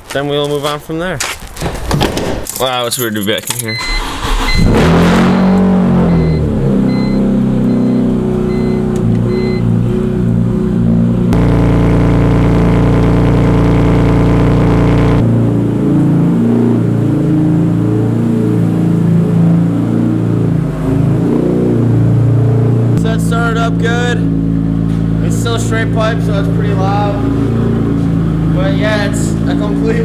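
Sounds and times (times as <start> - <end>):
repeated beeping: 3.1 - 4.8, 6.0 - 9.7
car engine starting and idling: 3.1 - 30.0.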